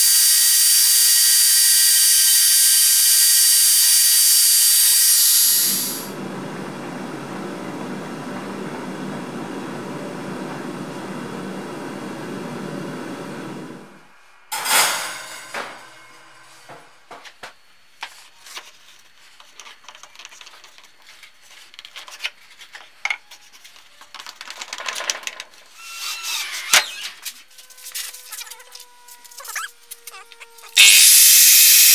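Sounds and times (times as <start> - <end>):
cordless drill whining: 0.0 - 6.1, 30.6 - 31.9.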